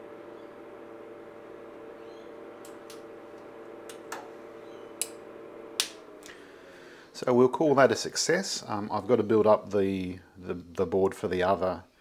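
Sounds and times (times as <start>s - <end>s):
cooling fan humming: 0.0s - 8.0s.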